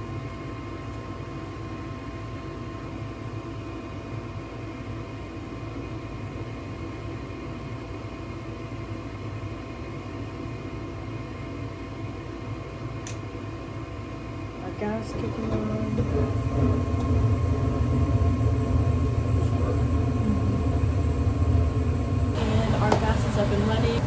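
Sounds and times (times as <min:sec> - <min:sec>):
furnace motor whirring: 0:14.7 - 0:24.0.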